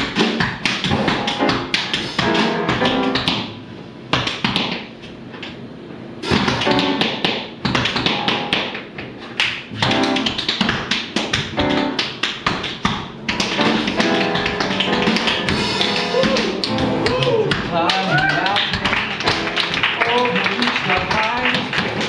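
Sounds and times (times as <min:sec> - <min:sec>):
piano chords: 0:00.8 - 0:04.1, 0:06.5 - 0:09.0, 0:09.7 - 0:22.0
drums: 0:13.3 - 0:19.4.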